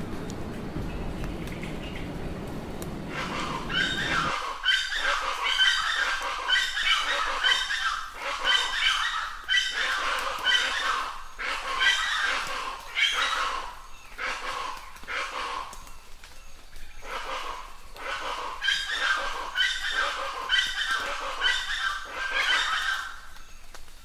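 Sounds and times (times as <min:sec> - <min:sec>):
low rushing noise: 0:00.0 - 0:04.6
birds calling: 0:00.0 - 0:23.8.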